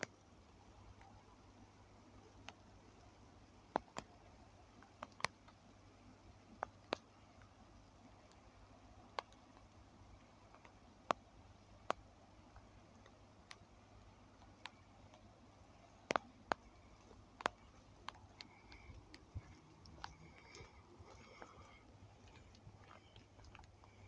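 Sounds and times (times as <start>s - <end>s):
sharp ticks and clicks: 3.7s - 5.6s, 8.2s - 24.0s.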